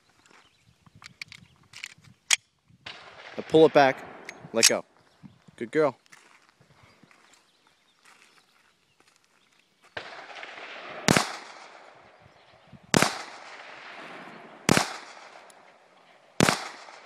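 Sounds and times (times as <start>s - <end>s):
pistol shots with echo: 2.9s - 4.8s, 10.0s - 12.2s, 12.9s - 17.0s.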